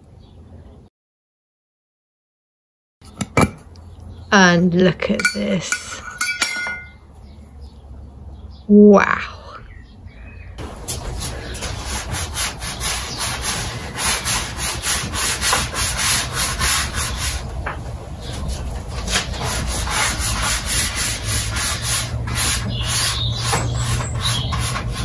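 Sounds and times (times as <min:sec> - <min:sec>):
paintbrush scrubbing on paper: 0:10.8 - 0:17.5, 0:19.3 - 0:25.0.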